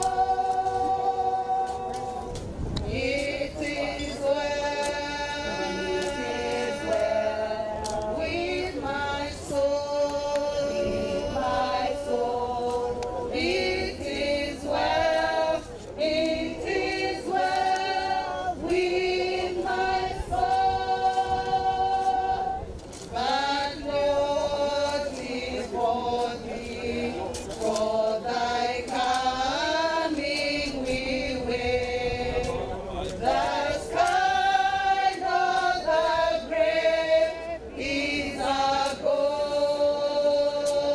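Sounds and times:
group of voices singing: 0.0 - 40.9.

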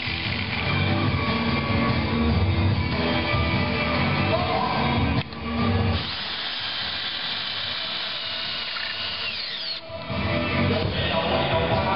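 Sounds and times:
hammer drill driving screw: 0.0 - 0.7, 6.0 - 9.9.

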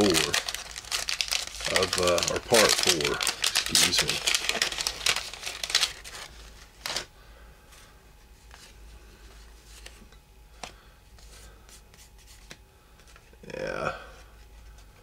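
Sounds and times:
wrapper crinkling and tearing: 0.0 - 7.1.

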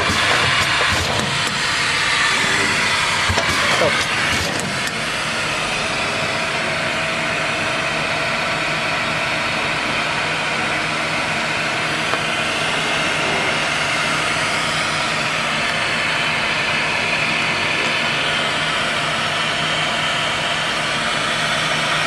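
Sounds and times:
packaging machine hiss and hum: 0.0 - 7.5.

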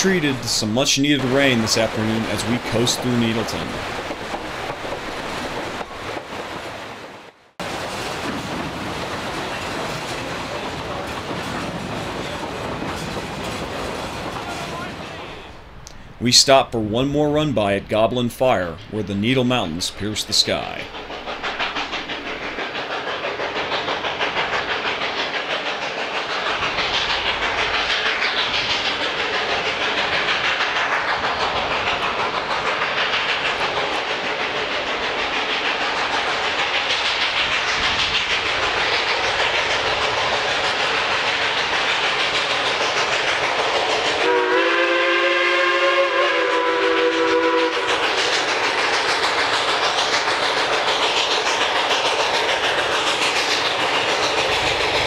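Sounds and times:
train wheels clattering: 0.0 - 16.1, 19.2 - 55.0
steam whistle blast: 44.2 - 47.9.

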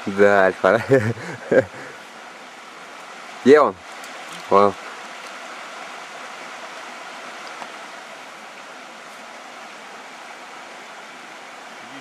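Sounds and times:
river running over stones: 0.0 - 12.0.

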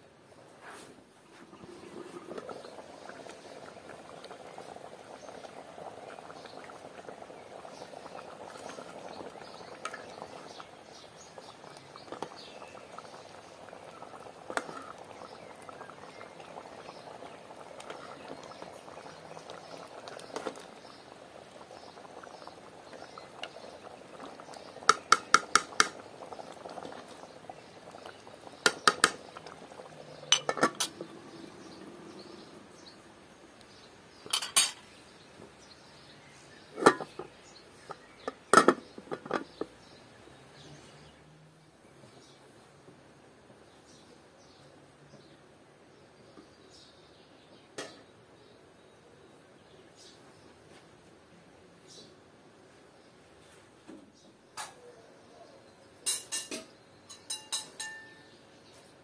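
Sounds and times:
stew bubbling in a pot: 0.2 - 59.0
metal spoon stirring: 30.3 - 31.0
spoon and lid clinking on pot: 30.3 - 31.0, 34.3 - 34.8, 36.8 - 37.2, 56.0 - 58.3.

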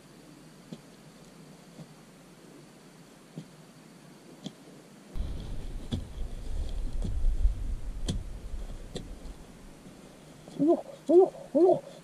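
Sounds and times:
digging bar striking soil: 5.2 - 7.4
steady low rumble: 5.2 - 10.5.

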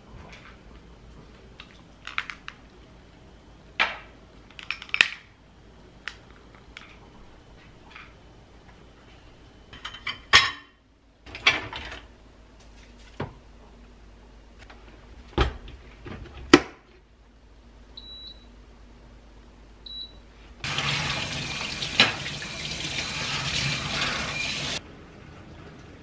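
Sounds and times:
dishwasher control panel beep: 18.0 - 18.5, 19.9 - 20.2.

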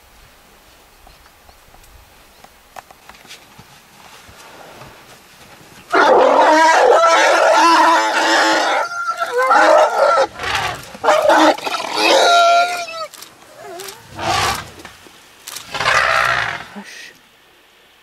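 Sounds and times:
elephants trumpeting and screaming: 5.9 - 14.9, 15.6 - 16.8.

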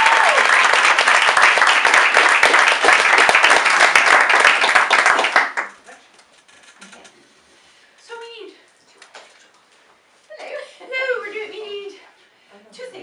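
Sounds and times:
audience clapping: 0.0 - 5.8.

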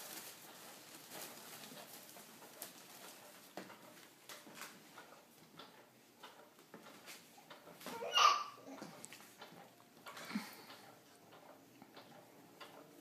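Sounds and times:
light taps and rustles: 0.0 - 8.0.

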